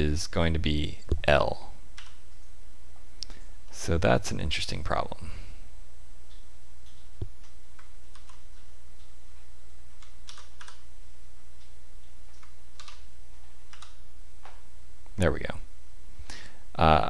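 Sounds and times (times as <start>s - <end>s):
steady low hum: 0.0s - 17.0s
computer keyboard key clicks: 10.0s - 10.8s, 12.4s - 13.0s, 13.7s - 14.0s.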